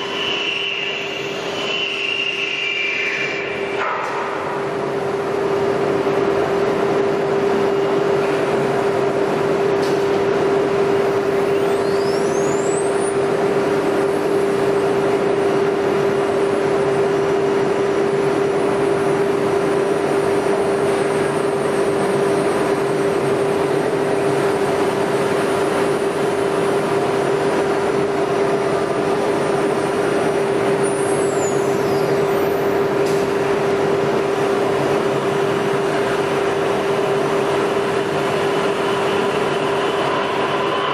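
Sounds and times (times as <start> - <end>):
router spindle high whine: 0.0 - 4.0.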